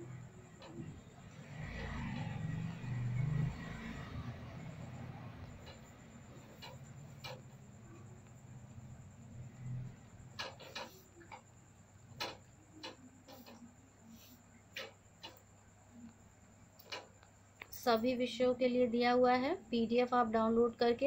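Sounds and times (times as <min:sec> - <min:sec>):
faint clicks and ticks: 0:00.0 - 0:01.9, 0:03.6 - 0:17.8.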